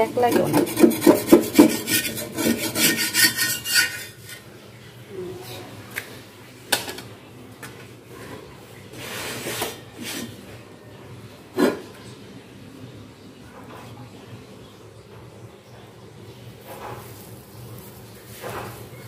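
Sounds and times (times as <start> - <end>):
metal spatula scraping a griddle: 0.1 - 4.5, 18.2 - 19.0.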